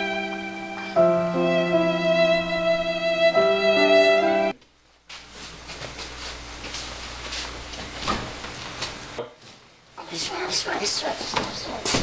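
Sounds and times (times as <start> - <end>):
slow string music: 0.0 - 4.6.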